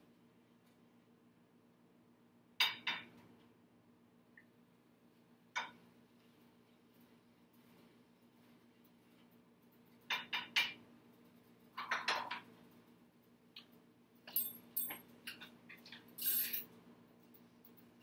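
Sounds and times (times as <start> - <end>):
faint steady hum: 0.0 - 18.0
dishes and utensils clattering: 11.8 - 12.5.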